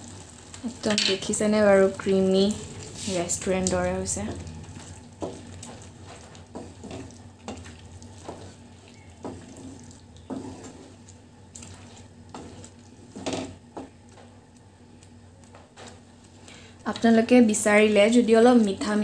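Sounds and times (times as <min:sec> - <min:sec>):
steady low hum: 0:00.0 - 0:19.0
spatula stirring thick gravy: 0:04.0 - 0:14.6.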